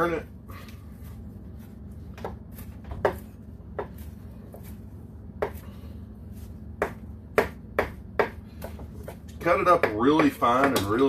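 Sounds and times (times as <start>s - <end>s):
knife chopping on cutting board: 2.1s - 5.7s, 6.4s - 11.0s.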